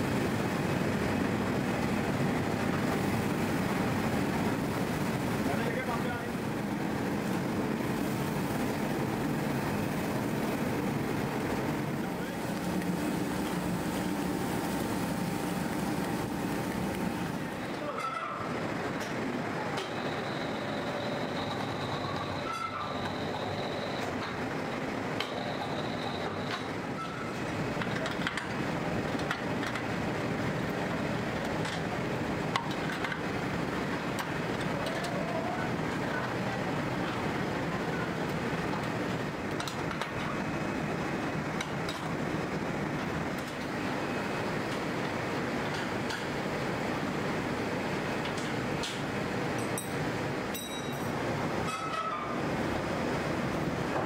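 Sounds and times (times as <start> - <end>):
machine humming: 0.0 - 18.9
factory machinery din: 0.0 - 46.9.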